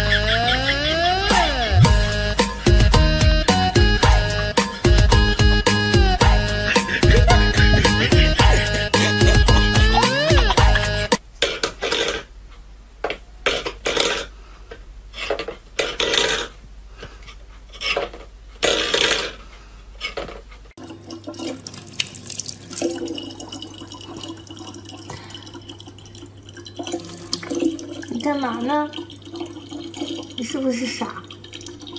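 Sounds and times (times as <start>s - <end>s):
steady hum: 0.0s - 11.2s
water splashing: 20.8s - 31.9s.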